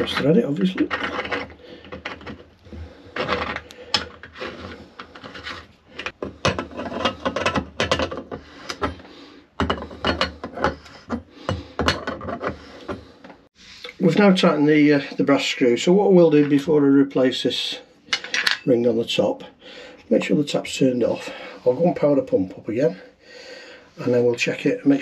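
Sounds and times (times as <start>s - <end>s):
metallic scrapes and clicks: 0.0s - 9.0s.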